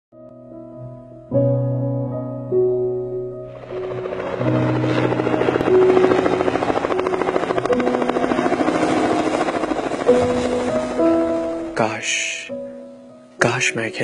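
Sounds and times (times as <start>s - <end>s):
soft piano music: 0.1s - 14.0s
helicopter rotor chopping: 3.5s - 11.8s.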